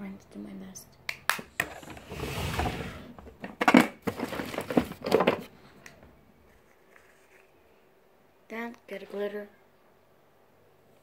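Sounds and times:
items knocking and clattering: 1.4s - 5.5s.

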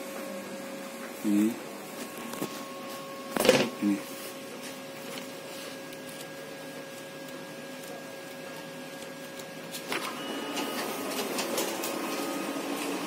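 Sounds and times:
high machine whine: 0.0s - 13.0s
photocopier humming: 0.0s - 13.0s.

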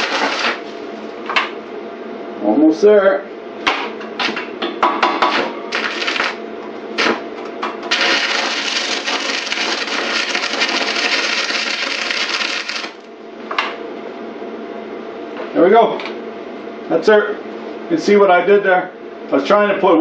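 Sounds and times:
arc welding crackling hiss: 0.0s - 0.8s, 5.2s - 6.4s, 7.0s - 7.2s, 7.8s - 13.1s
welding arc strikes: 0.0s - 0.8s, 4.2s - 7.2s, 7.8s - 13.1s.

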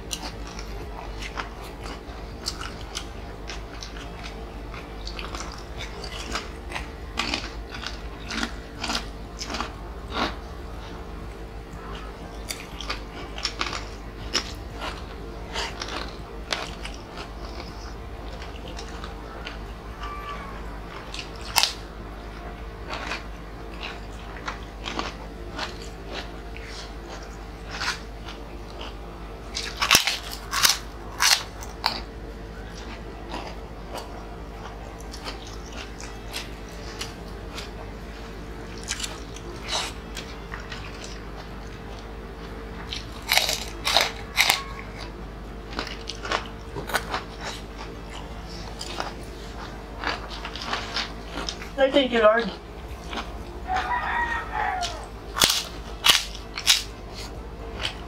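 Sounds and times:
crunching crispy crackers: 0.0s - 58.0s
steady low hum: 0.0s - 58.0s.

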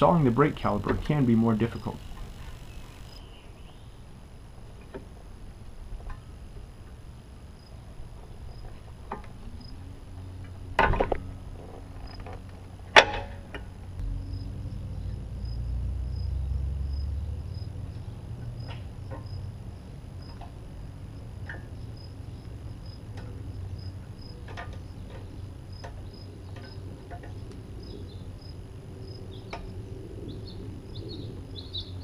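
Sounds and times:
low rumble: 13.9s - 18.4s.

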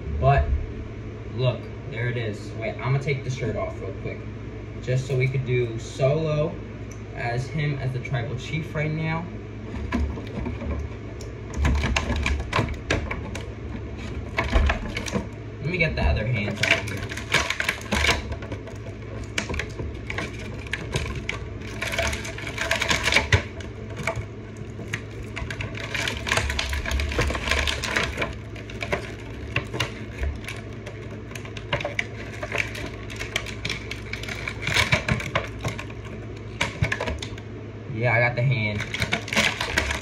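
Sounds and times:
plastic packaging crinkling and clicking: 9.7s - 37.4s, 38.5s - 40.0s.

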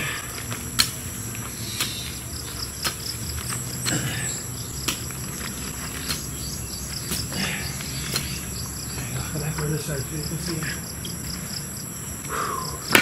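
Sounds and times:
insects chirring: 0.0s - 13.0s
hoe chopping into soil: 2.8s - 4.2s, 4.8s - 6.4s, 7.0s - 8.4s.

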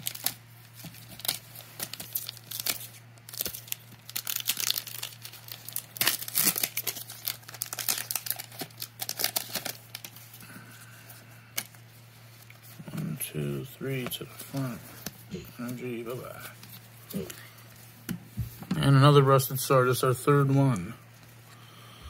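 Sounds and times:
foil pack crinkling and tearing: 0.0s - 11.8s.

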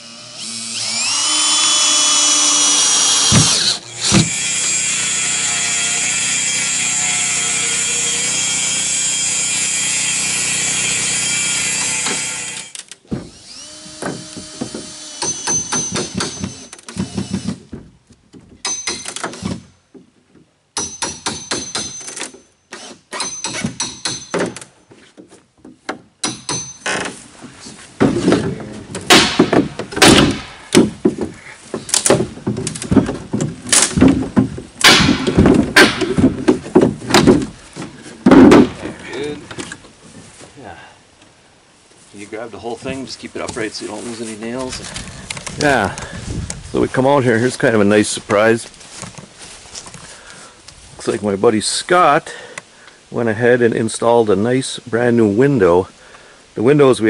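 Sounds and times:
cordless drill driving screws: 0.0s - 17.6s, 22.7s - 23.8s
knocks and clanks of hand tools: 3.2s - 4.4s, 11.6s - 27.2s, 28.0s - 39.8s
high squeaks: 12.6s - 17.4s.

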